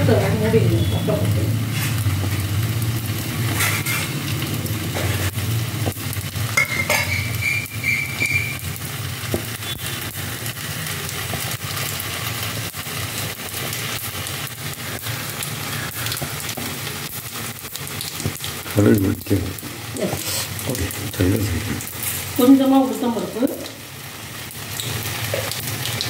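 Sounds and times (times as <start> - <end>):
hot oil sizzling: 0.0 - 26.0
high whistling tone: 7.0 - 8.6.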